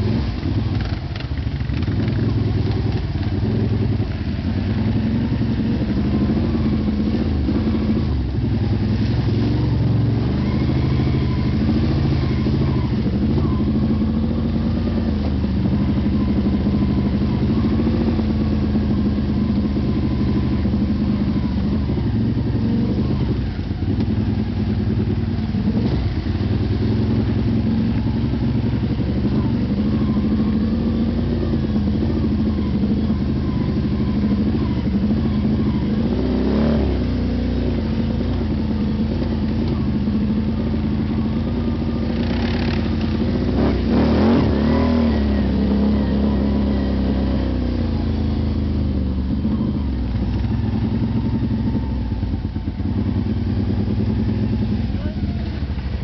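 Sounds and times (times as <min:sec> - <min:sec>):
atv engine revving: 0:00.0 - 0:56.0.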